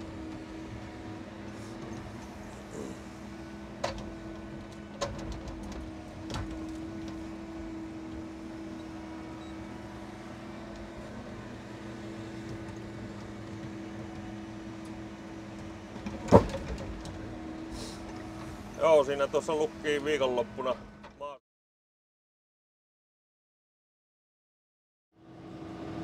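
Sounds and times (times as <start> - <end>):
truck engine and hydraulics hum: 0.0 - 21.3, 25.2 - 26.0
loud thud of timber set down: 16.1 - 17.0.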